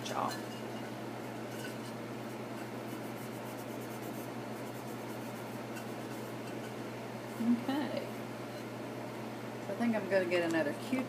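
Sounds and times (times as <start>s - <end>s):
low electrical hum: 0.0s - 11.0s
painting tool scratching ceramic: 0.1s - 6.8s.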